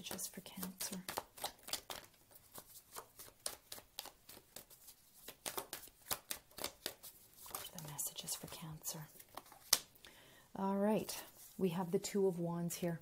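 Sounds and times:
cards being shuffled: 0.0s - 10.0s.

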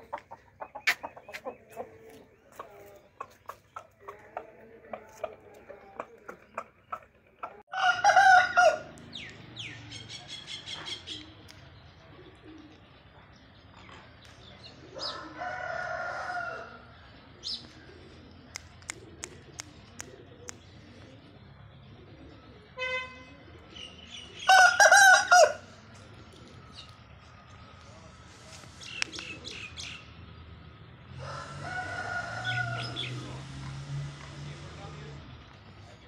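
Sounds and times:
roosters crowing: 7.6s - 9.7s, 14.8s - 17.2s, 24.4s - 25.8s, 31.1s - 34.0s.

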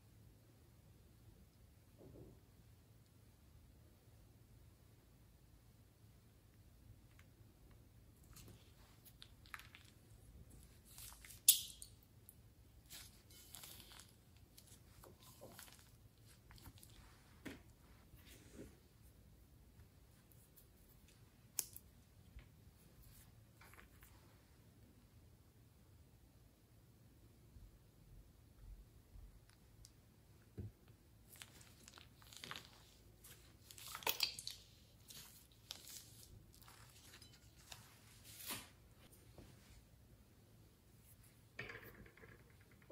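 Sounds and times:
plastic piping bag crinkling: 12.8s - 17.3s, 31.2s - 38.7s
slime squelching: 12.8s - 18.0s, 31.2s - 38.7s.

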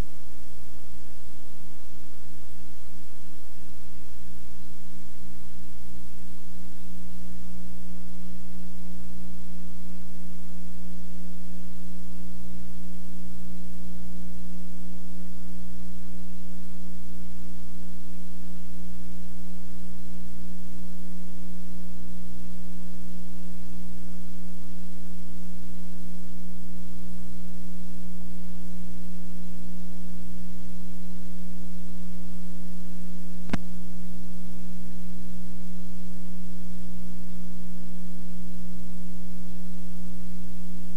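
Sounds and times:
electrical mains hum: 0.0s - 40.9s
tape hiss: 0.0s - 40.9s
sharp click: 33.5s - 33.7s.

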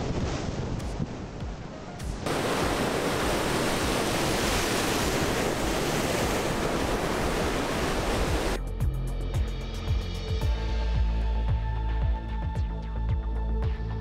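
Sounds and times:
wind on microphone: 0.0s - 8.6s
surf washing against rocks: 2.2s - 8.6s.

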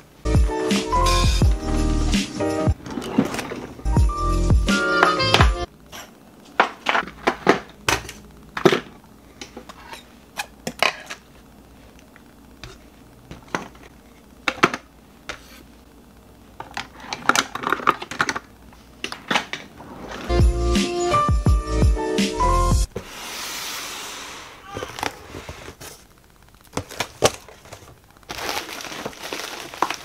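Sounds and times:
objects clattering in a drawer: 2.8s - 3.9s.

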